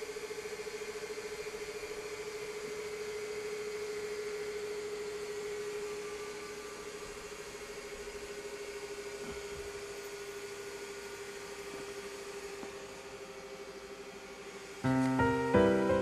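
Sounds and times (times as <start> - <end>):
low hiss of room tone: 13.1 - 16.0.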